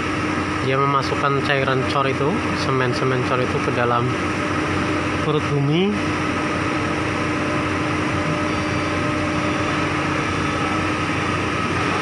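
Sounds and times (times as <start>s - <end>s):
diesel engines of heavy machinery: 0.0s - 12.0s.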